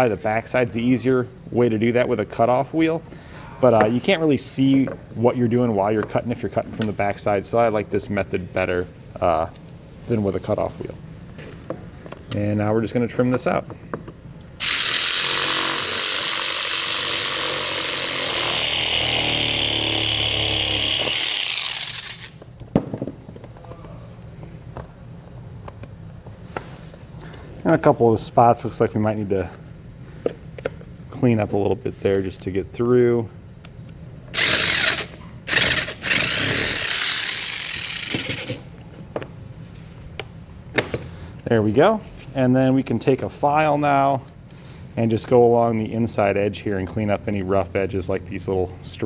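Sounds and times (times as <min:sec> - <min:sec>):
reciprocating saw cutting plastic: 0:14.6 - 0:22.4, 0:34.3 - 0:38.7.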